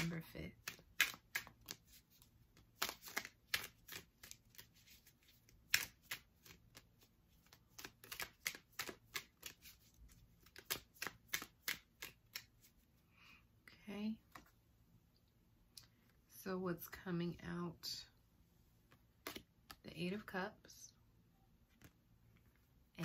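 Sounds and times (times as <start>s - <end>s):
cards being shuffled: 0.0s - 12.8s, 18.9s - 19.8s, 21.7s - 22.5s.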